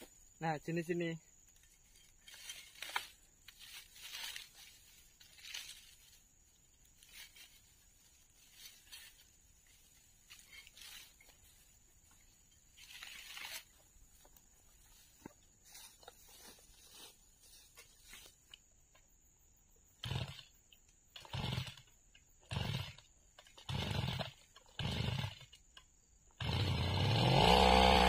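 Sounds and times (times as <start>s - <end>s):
dry stems rustling and tearing: 1.9s - 6.1s, 10.2s - 11.5s, 12.8s - 13.8s.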